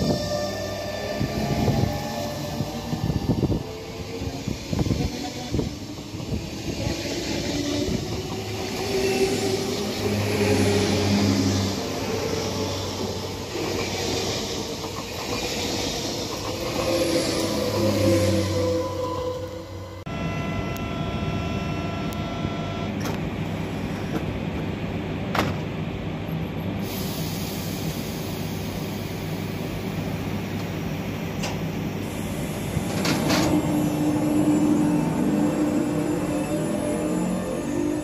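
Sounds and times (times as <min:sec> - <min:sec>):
train equipment hum: 0:00.0 - 0:38.0.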